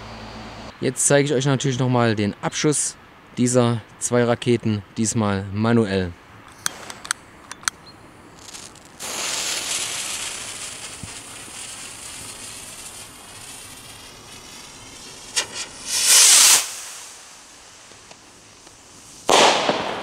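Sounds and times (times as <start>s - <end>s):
fuse hissing: 8.3s - 19.3s
rocket whoosh: 8.4s - 20.0s
rocket motor cracks: 14.4s - 17.2s.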